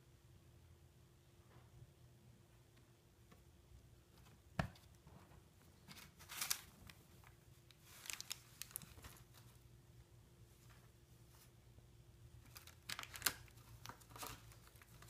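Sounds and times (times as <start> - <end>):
snack bag crinkling: 7.7 - 9.4, 12.4 - 15.0.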